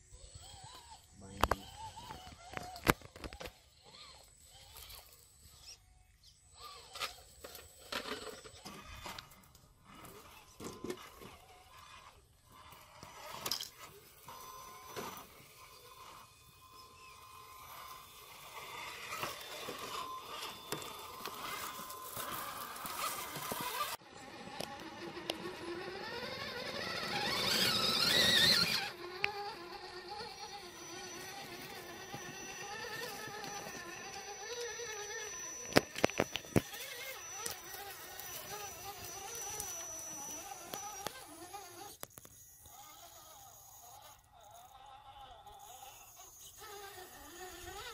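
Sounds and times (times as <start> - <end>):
electric motors whining: 0.0 - 47.9
tyres scraping on rock: 6.6 - 42.4.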